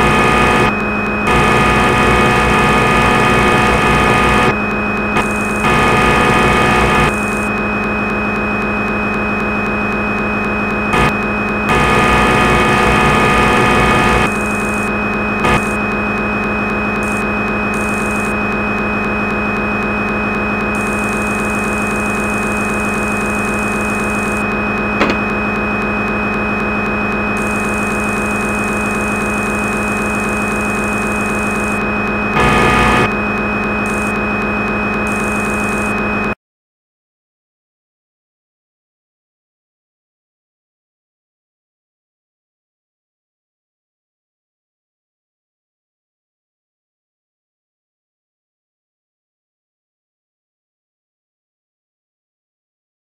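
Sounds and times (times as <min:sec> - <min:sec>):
synthetic machine hum: 0:00.0 - 0:36.4.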